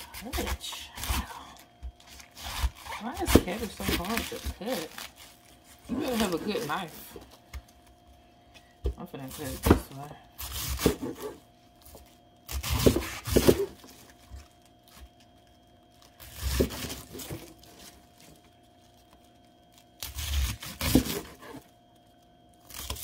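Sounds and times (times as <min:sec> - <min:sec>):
knife slicing cabbage: 0:00.0 - 0:01.4, 0:02.0 - 0:06.9, 0:09.4 - 0:11.4, 0:12.5 - 0:14.0, 0:20.0 - 0:21.7.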